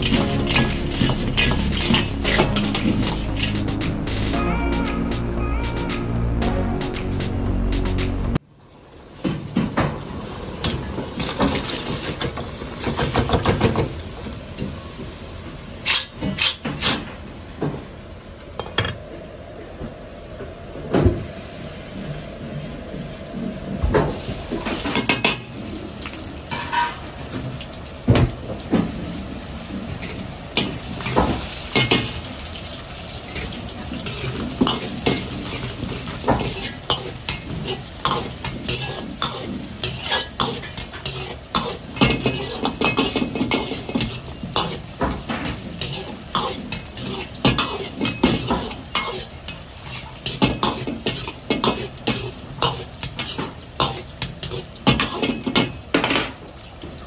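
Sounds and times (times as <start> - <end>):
metal ladle scraping a wok: 0.0 - 3.6, 15.8 - 17.0, 34.0 - 44.9, 45.7 - 55.5
aromatics sizzling in hot oil: 0.0 - 4.3, 8.7 - 17.2, 23.9 - 57.0.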